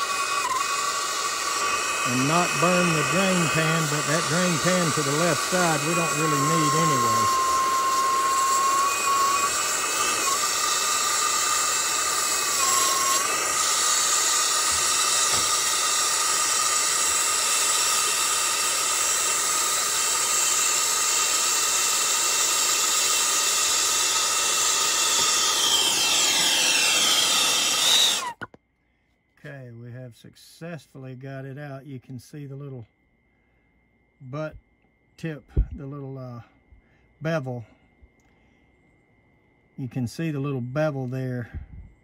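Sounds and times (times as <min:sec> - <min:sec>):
torch flame hissing and whistling: 0:00.0 - 0:28.5.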